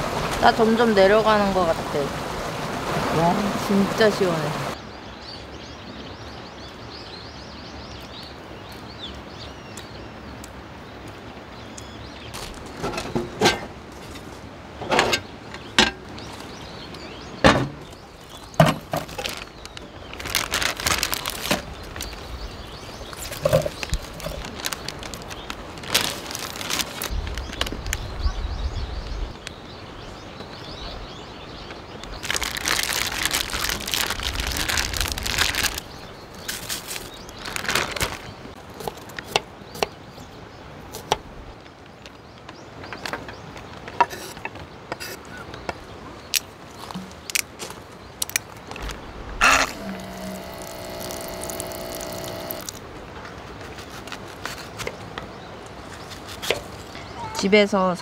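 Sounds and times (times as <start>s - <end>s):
outdoor background hiss: 0.0s - 58.0s
rustling: 18.2s - 28.2s, 32.1s - 39.2s, 46.7s - 55.1s.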